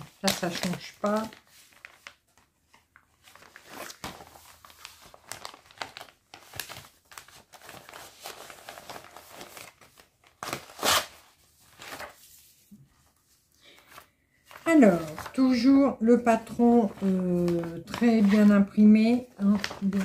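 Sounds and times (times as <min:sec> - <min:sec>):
packaging crinkling: 0:00.0 - 0:12.2, 0:16.8 - 0:20.0.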